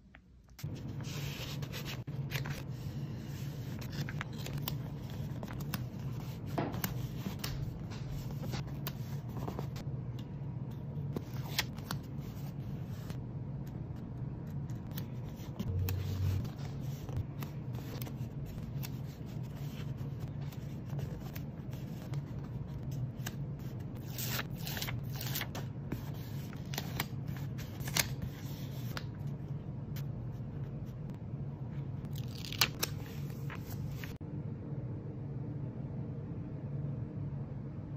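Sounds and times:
steady low hum: 0.0s - 37.9s
paper stickers rustling and rubbing: 0.6s - 9.8s.

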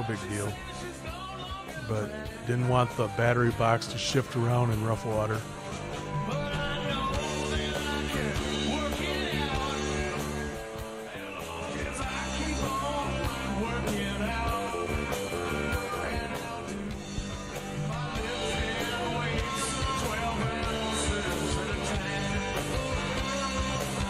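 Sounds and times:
rock and roll music with guitar: 0.0s - 24.0s.

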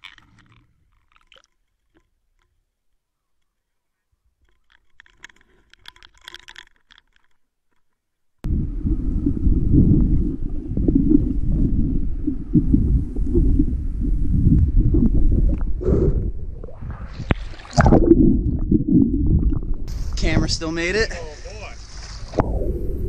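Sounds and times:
churning water rumble underwater: 8.4s - 20.7s, 22.2s - 23.0s.

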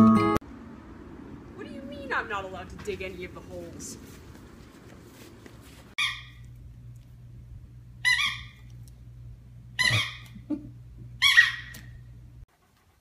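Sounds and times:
low steady hum: 0.0s - 13.0s
dog whining: 9.8s - 10.4s.

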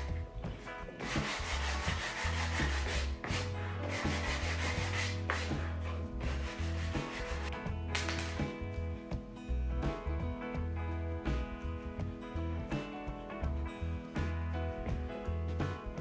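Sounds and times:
background music: 0.0s - 16.0s
sanding on wooden board: 1.0s - 7.5s.

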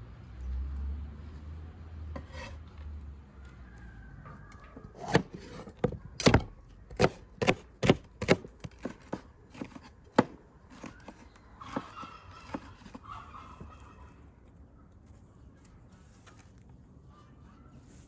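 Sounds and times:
knife chopping on wooden board: 5.0s - 13.0s.

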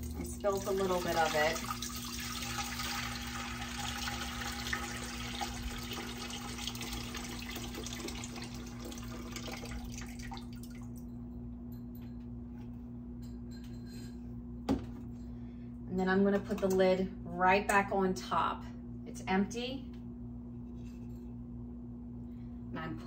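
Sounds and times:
liquid pouring into a pot: 0.0s - 10.9s
water dripping: 6.5s - 11.1s.

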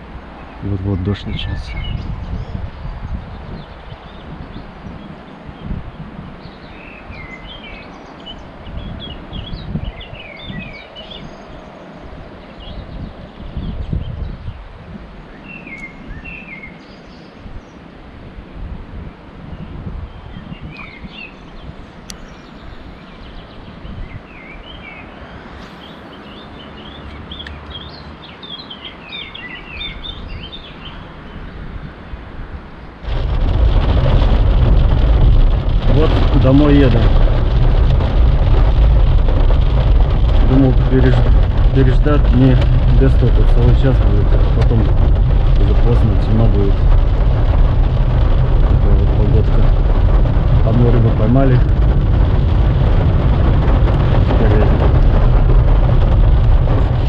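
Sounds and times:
wind gusting on microphone: 0.0s - 57.0s
small birds chirping: 0.3s - 17.9s, 19.4s - 32.2s, 32.8s - 51.8s
loud steady rushing noise: 31.9s - 57.0s.

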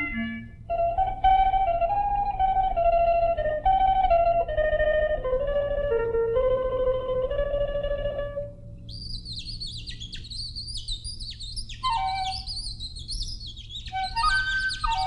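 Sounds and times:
falling whistled notes: 0.0s - 6.8s, 8.9s - 15.0s
low steady hum: 0.0s - 15.0s
bird twittering: 8.9s - 15.0s.

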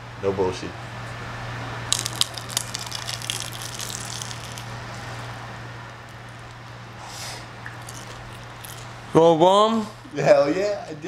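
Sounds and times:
steady low hum: 0.0s - 11.0s
wet mouth clicks: 7.6s - 8.9s.

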